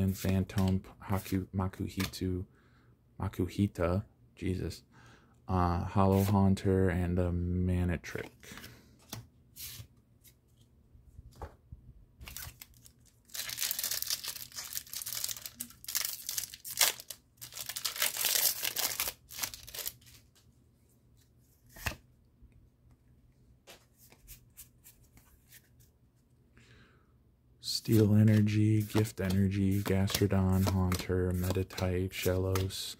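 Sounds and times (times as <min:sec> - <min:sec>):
foil wrapper tearing and crinkling: 0:12.3 - 0:20.1.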